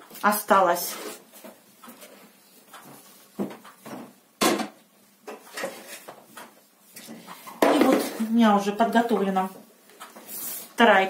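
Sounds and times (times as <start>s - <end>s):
plastic pots knocking and clattering: 7.4s - 8.3s.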